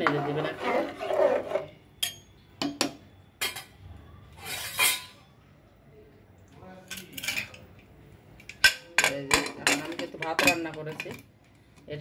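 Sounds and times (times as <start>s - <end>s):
metal spoon scraping pot: 0.0s - 2.3s, 4.4s - 5.3s, 8.4s - 11.2s.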